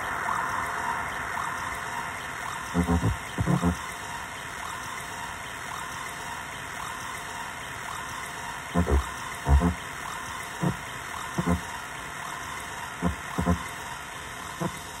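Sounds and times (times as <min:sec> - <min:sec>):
low buzzing blips: 0:00.0 - 0:04.8, 0:08.7 - 0:11.9, 0:13.0 - 0:13.8.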